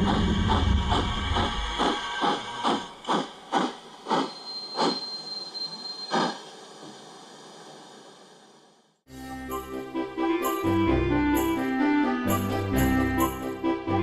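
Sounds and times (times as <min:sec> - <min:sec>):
steam locomotive chuffing: 0:00.0 - 0:06.8.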